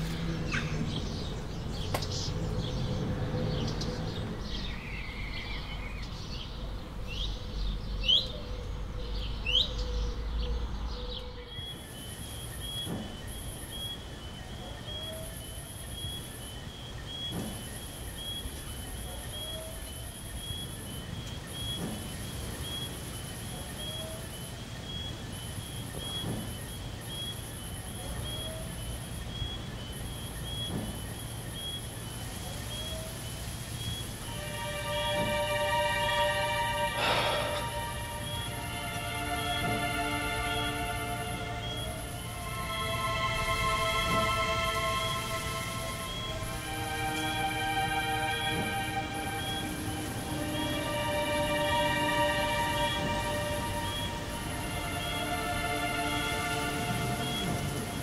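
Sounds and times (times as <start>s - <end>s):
birds chirping: 0.0s - 58.0s
high-pitched insect trill: 11.4s - 58.0s
short rising call: 34.2s - 55.5s.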